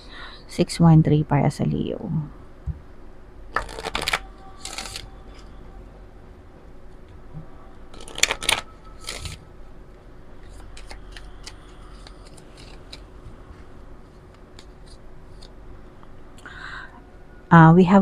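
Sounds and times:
cards being shuffled: 3.5 - 5.5, 7.9 - 9.4, 10.4 - 15.5
light clicks and slides of cards: 10.4 - 13.0.

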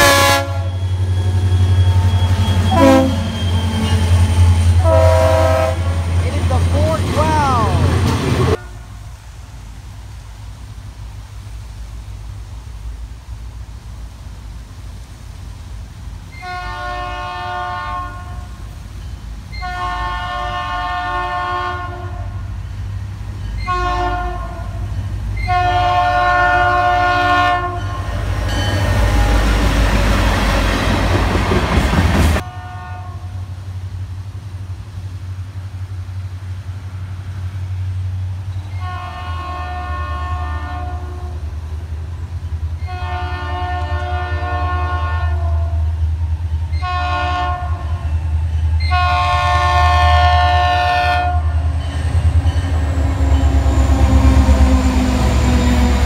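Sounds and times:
locomotive air horn blasts: 0.0 - 0.8, 2.5 - 3.5, 4.4 - 6.2, 16.3 - 18.6, 19.5 - 22.5, 23.6 - 28.1, 32.4 - 33.4, 38.7 - 41.5, 42.8 - 46.0, 46.7 - 48.1, 48.8 - 51.6.

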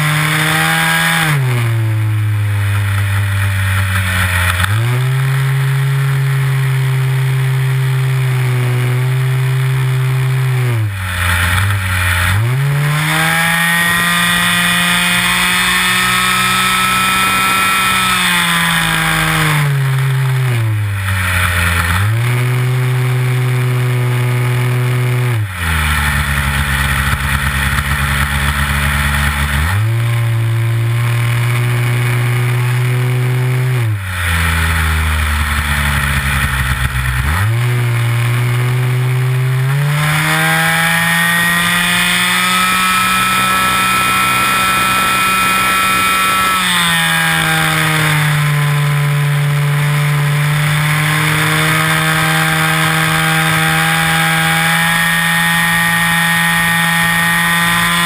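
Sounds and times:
model airplane engine running: 13.3 - 20.2, 38.3 - 58.0.

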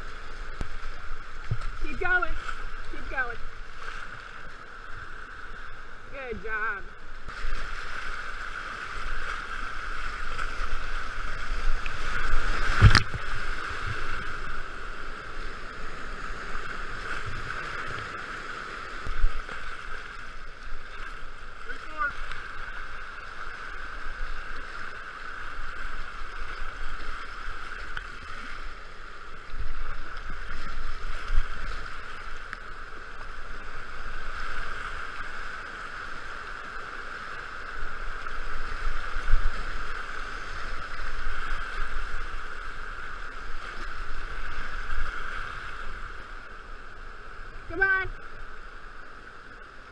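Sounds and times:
water thumping against boat: 12.7 - 13.3.

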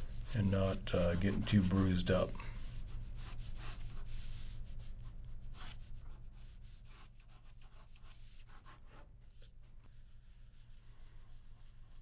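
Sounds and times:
low steady hum: 0.0 - 12.0
pen scratching on paper: 2.6 - 12.0.

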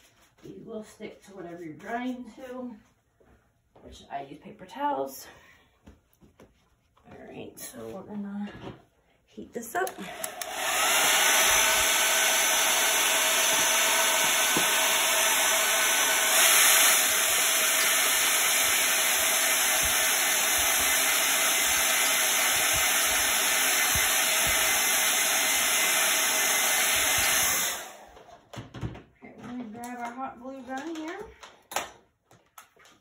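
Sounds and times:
hair dryer blowing: 9.8 - 28.4.

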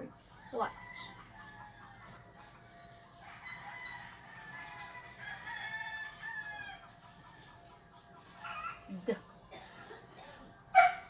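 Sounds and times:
rooster crowing: 0.4 - 2.1, 3.2 - 6.9, 8.4 - 8.9.

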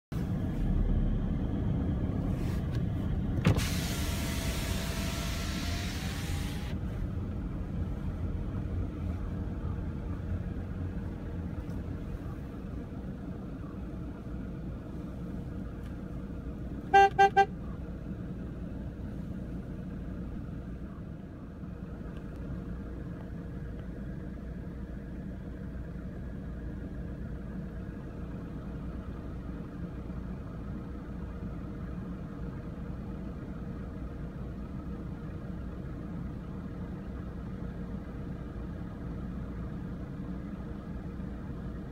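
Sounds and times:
car engine rumble: 0.1 - 41.9
power window whirring: 3.4 - 6.8
car horn toots: 16.9 - 17.6.

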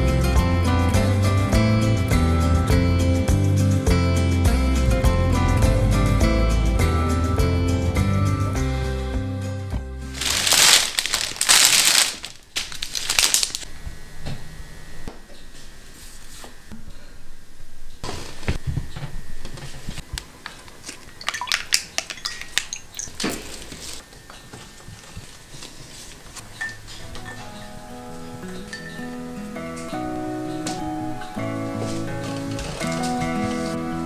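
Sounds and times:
rustling and crinkling: 10.0 - 13.7, 18.0 - 28.8, 31.7 - 33.9.

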